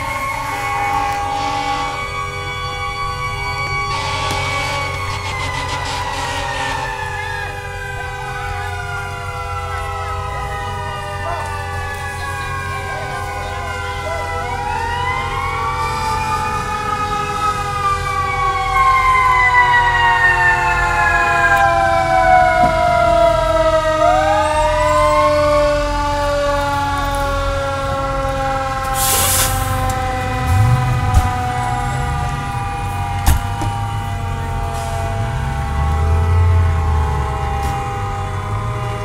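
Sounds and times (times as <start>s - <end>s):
fire engine siren winding up: 0.0s - 39.0s
short hiss: 29.0s - 29.7s.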